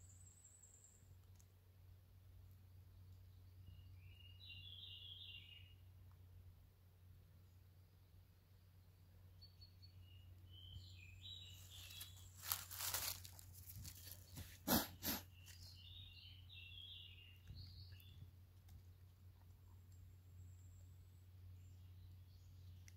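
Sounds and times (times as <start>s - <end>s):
small birds chirping: 2.4s - 6.1s, 7.4s - 22.9s
dry leaves rustling: 11.3s - 14.6s.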